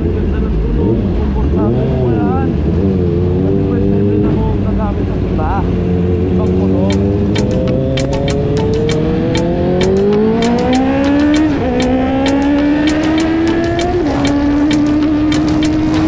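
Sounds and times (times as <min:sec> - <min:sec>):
motorcycle engine accelerating: 0:00.0 - 0:16.0
sharp ticks: 0:06.4 - 0:16.0.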